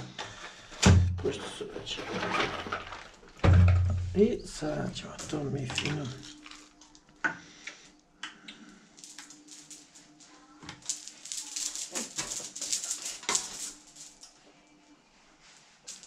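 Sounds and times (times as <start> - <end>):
pills clicking and rattling: 6.2 - 7.1, 9.0 - 14.3.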